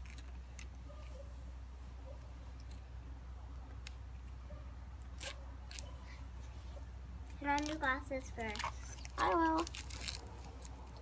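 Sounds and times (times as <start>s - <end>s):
packet handling noises: 7.3s - 11.0s.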